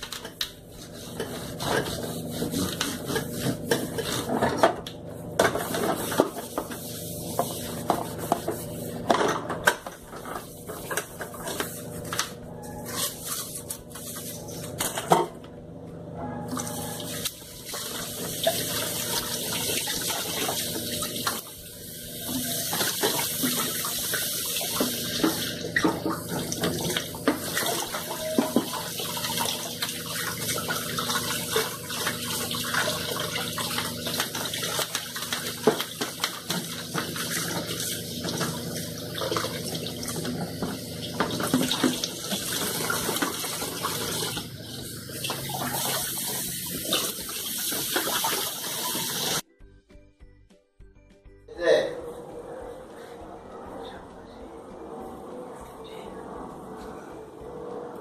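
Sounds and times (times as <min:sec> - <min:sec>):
dishes knocking and clattering: 0:07.4 - 0:11.6, 0:24.8 - 0:28.9
tap water running into sink: 0:16.6 - 0:49.4.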